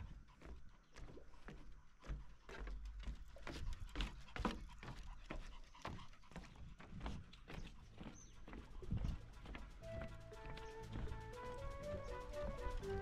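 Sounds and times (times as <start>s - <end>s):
dog paws on wooden planks: 0.0s - 13.0s
footsteps on wooden planks: 0.0s - 13.0s.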